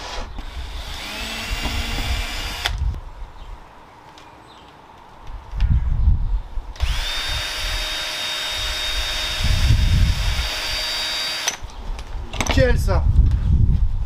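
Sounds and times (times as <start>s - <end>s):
cordless drill whining: 0.0s - 2.8s, 6.8s - 11.6s.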